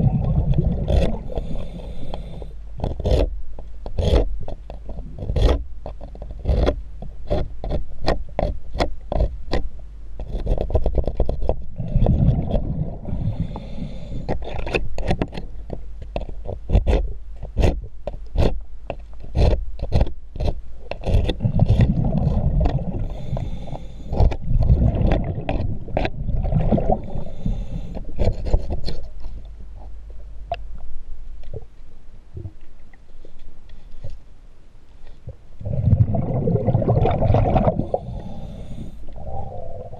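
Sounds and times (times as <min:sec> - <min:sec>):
diver's exhaled bubbles rumbling: 0:00.0 - 0:01.4, 0:11.8 - 0:13.4, 0:21.4 - 0:23.2, 0:24.2 - 0:27.4, 0:35.6 - 0:38.3, 0:39.2 - 0:39.9
scraper scraping metal underwater: 0:00.0 - 0:09.6, 0:10.2 - 0:18.6, 0:19.2 - 0:29.5.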